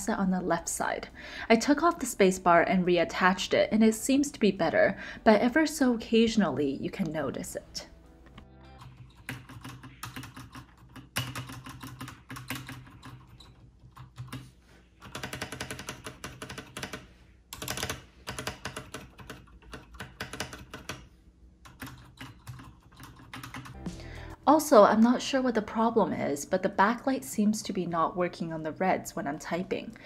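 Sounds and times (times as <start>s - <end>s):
mechanical keyboard keystrokes: 15.0s - 17.0s, 17.6s - 21.0s, 21.7s - 23.8s.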